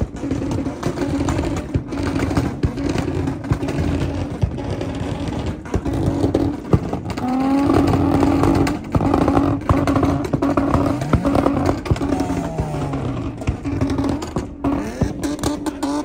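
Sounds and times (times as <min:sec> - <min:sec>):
car engines running: 0:00.0 - 0:16.0
engine revving: 0:00.0 - 0:16.0.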